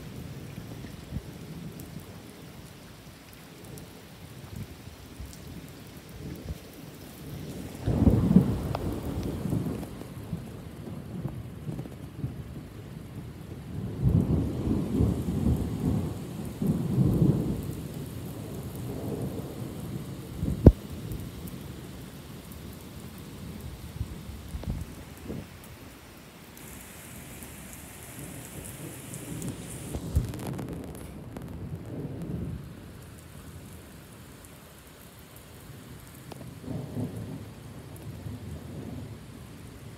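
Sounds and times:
heavy rain on pavement: 0.0s - 39.9s
thunder rumbling: 7.6s - 12.6s, 13.7s - 21.2s, 28.2s - 33.0s.

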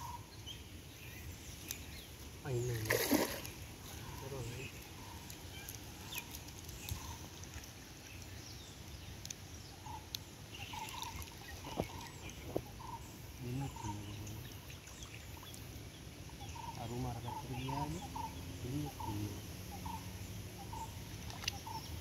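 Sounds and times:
faint bird calls: 9.7s - 22.0s.

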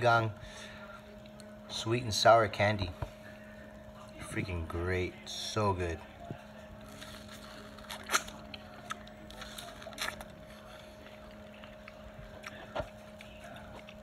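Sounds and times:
man chewing mango: 6.8s - 14.0s.

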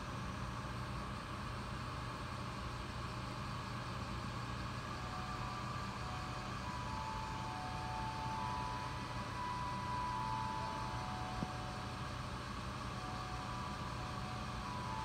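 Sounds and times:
air conditioner humming: 0.0s - 15.0s
thin high whine: 4.8s - 15.0s.

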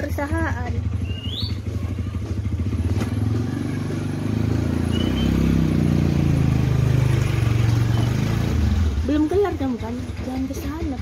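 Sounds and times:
motor scooter engine: 0.0s - 11.0s.

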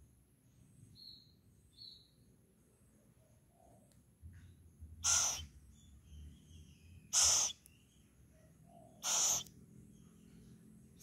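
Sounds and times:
owlet hissing screeches: 5.1s - 5.4s, 7.2s - 7.6s, 9.0s - 9.5s.

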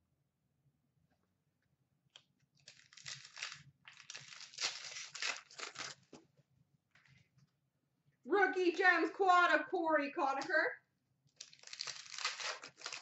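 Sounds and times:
card pack wrapper crinkling and tearing: 2.6s - 6.1s, 11.3s - 13.0s.

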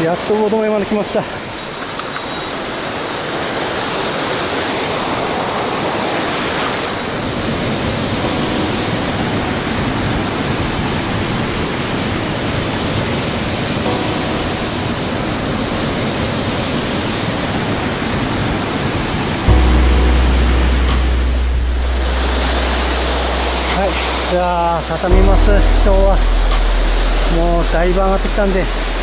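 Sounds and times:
waterfall rushing: 2.6s - 29.0s.

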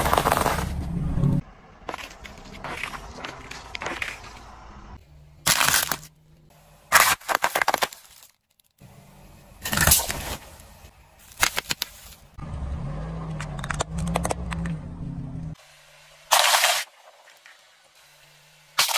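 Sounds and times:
low car hum: 0.0s - 6.9s, 8.8s - 11.4s, 12.0s - 16.3s, 17.1s - 18.8s
tyre crushing plastic: 5.4s - 6.2s, 6.9s - 8.8s, 11.2s - 12.2s.

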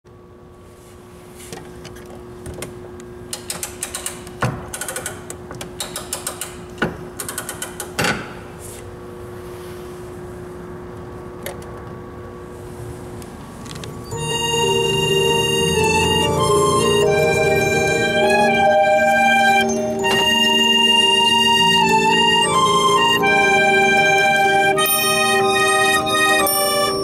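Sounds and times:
music box ratchet clicks: 3.3s - 6.6s, 7.2s - 8.0s
reed organ sustained notes: 14.0s - 27.0s.

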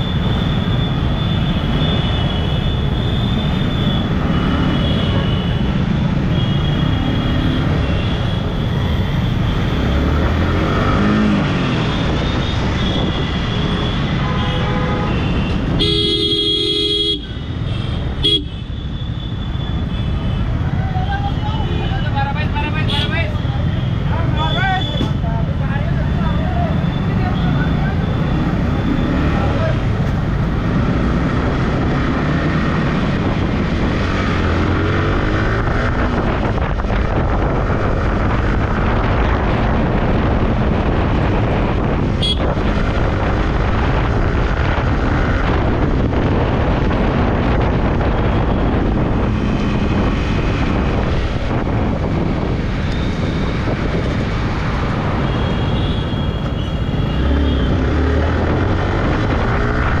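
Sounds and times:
wind noise on microphone: 7.6s - 14.3s, 29.9s - 60.0s
motorcycle engine revving: 28.1s - 55.2s.

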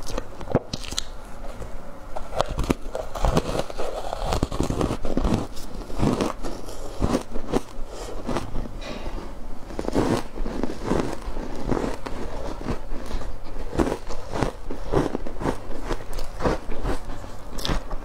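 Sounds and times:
ice cubes crunching: 2.4s - 8.5s, 9.8s - 18.0s.

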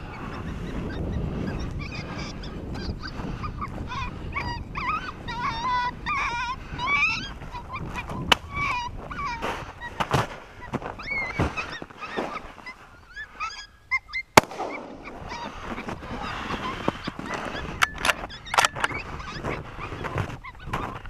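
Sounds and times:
footsteps crunching through snow: 7.4s - 13.1s, 14.8s - 21.0s.

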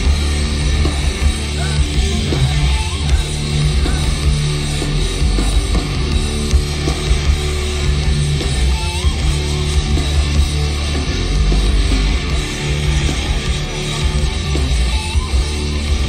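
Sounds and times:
heavy metal band playing: 0.0s - 16.0s.

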